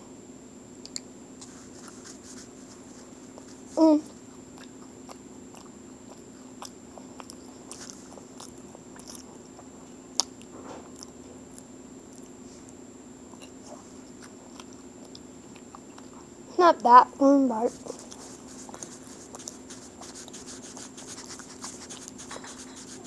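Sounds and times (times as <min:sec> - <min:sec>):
chewing: 0:03.3 - 0:16.3, 0:17.7 - 0:23.0.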